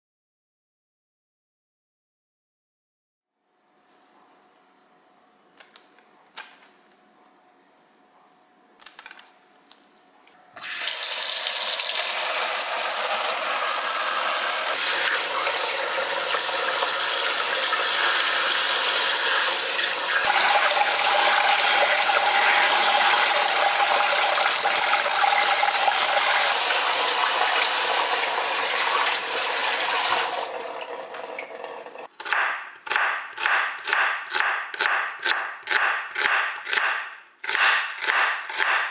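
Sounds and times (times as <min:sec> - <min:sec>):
tap water running into bowl: 0:10.6 - 0:32.1.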